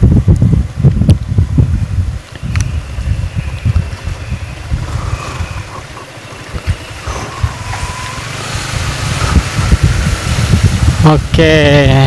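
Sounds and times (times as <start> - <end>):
motorcycle engine running: 0.0 - 12.0
wind rumbling on microphone: 0.0 - 12.0.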